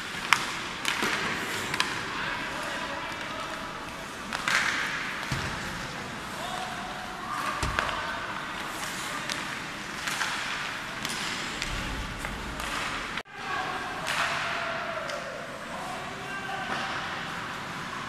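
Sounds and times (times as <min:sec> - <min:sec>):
pucks clacking against sticks: 0:00.0 - 0:02.1, 0:02.7 - 0:05.6, 0:07.4 - 0:13.2, 0:14.0 - 0:15.3.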